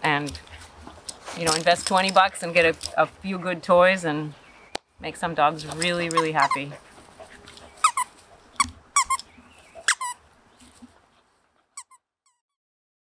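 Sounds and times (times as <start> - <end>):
squeaky dog toy squeaking: 6.1 - 6.6, 7.8 - 10.2, 11.8 - 12.4.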